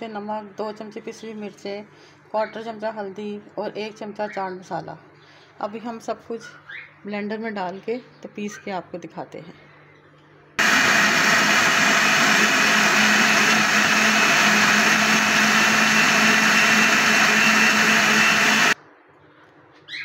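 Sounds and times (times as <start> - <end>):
blender whirring: 10.6 - 18.8.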